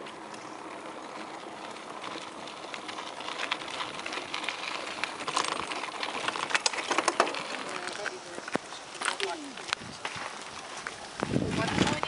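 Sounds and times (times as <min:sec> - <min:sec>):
bicycle tyres crunching on gravel: 0:00.0 - 0:12.0
clicks and rattles: 0:06.4 - 0:09.2.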